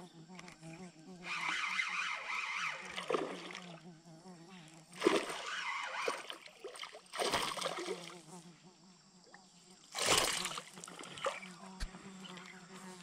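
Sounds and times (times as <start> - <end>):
insects droning: 0.0 - 13.0
lure splashing on water: 5.0 - 8.1, 10.0 - 11.5.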